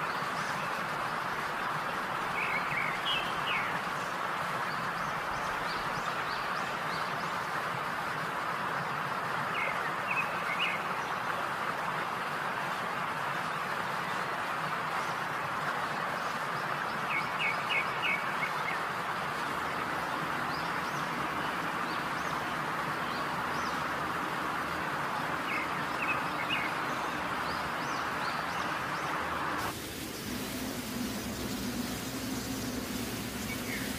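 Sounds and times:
birds chirping: 0:02.2 - 0:07.4, 0:16.1 - 0:33.9
chicken frying in hot oil: 0:29.6 - 0:33.9.

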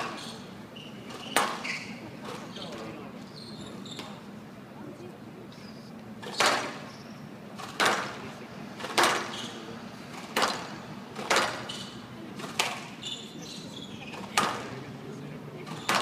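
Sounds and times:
squash ball cracks: 0:06.2 - 0:06.8, 0:07.6 - 0:08.2, 0:10.2 - 0:11.7, 0:12.4 - 0:12.9.

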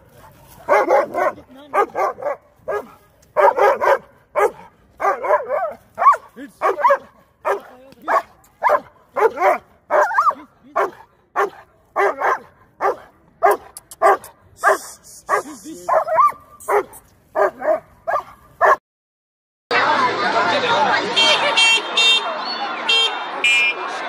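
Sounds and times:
dog barking: 0:00.1 - 0:18.8.

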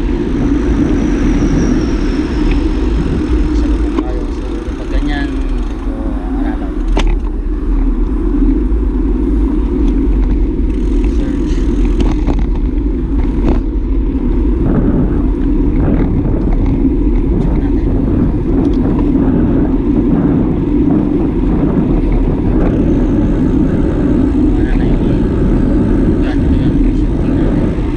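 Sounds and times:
wind rushing over microphone: 0:00.0 - 0:27.9
bike clicks and knocks: 0:06.8 - 0:07.9, 0:09.6 - 0:13.7.

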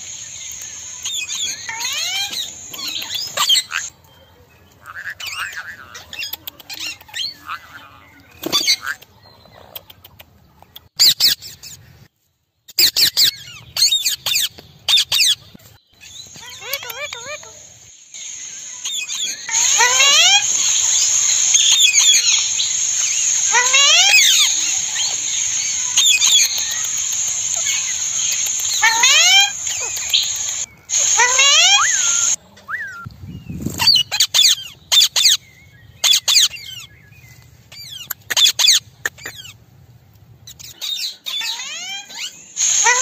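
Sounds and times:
parakeets calling: 0:18.2 - 0:32.4, 0:42.6 - 0:43.0.

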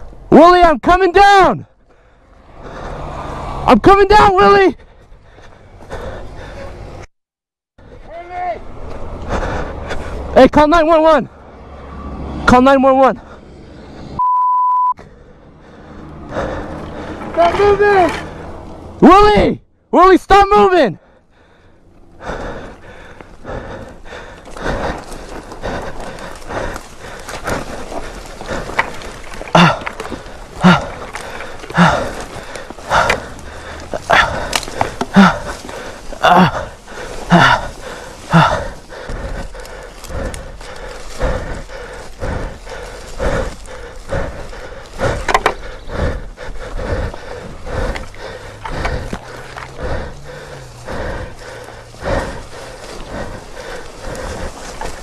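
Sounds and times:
heavy breathing: 0:01.6 - 0:03.7, 0:04.7 - 0:07.1, 0:08.9 - 0:10.4, 0:13.1 - 0:14.2, 0:15.0 - 0:19.0, 0:20.8 - 0:55.0
footsteps crunching on loose dirt: 0:22.0 - 0:55.0
twigs snapping and scraping: 0:24.3 - 0:45.9, 0:47.2 - 0:55.0.

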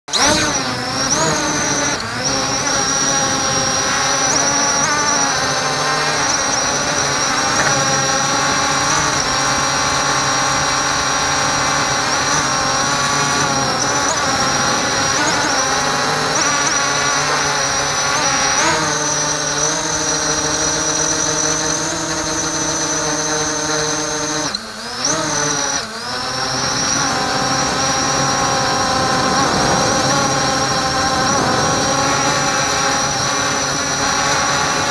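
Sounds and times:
drone propellers whining: 0:00.0 - 0:34.9.

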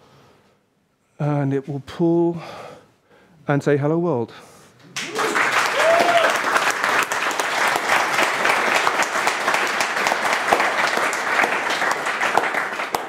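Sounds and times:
audience applauding: 0:05.0 - 0:13.0.

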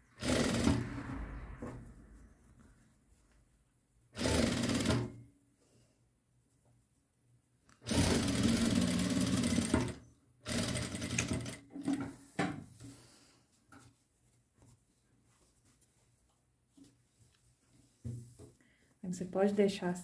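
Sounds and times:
sewing machine stitching: 0:00.0 - 0:01.1, 0:04.2 - 0:05.2, 0:07.8 - 0:12.1.

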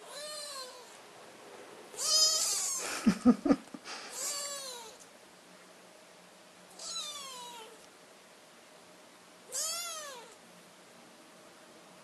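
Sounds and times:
kittens mewing: 0:02.0 - 0:05.0.

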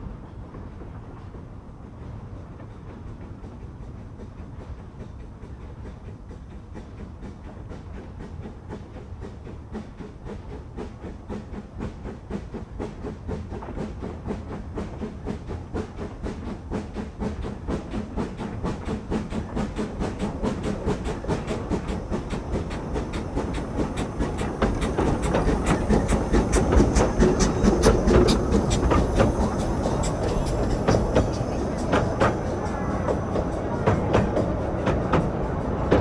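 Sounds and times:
steam locomotive exhaust beating: 0:00.0 - 0:36.0
steam hissing: 0:04.6 - 0:36.0.

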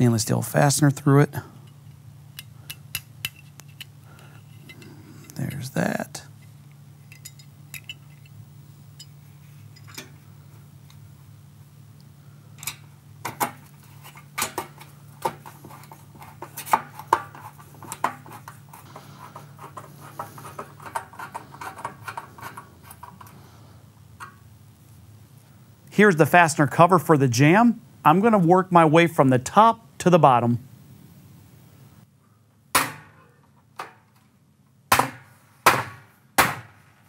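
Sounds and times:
low steady hum: 0:00.0 - 0:37.0
metal clicks and clinks: 0:06.4 - 0:08.4
screwdriver ticks and scrapes: 0:13.8 - 0:23.4.

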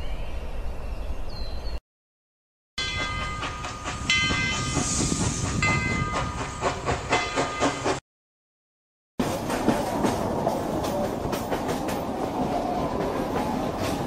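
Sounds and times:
train chuffing and clatter: 0:02.8 - 0:08.0, 0:09.2 - 0:14.0
hiss of steam: 0:04.5 - 0:07.0.

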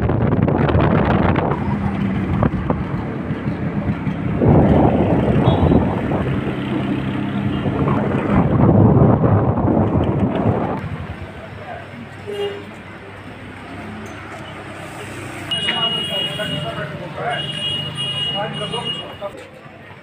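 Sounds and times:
wind rushing over microphone: 0:00.0 - 0:11.8
vehicle engine running: 0:00.1 - 0:11.5.

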